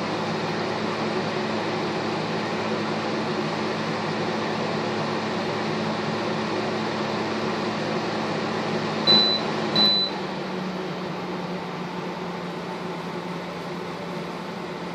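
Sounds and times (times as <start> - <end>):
control panel beeps: 9.1 - 10.2.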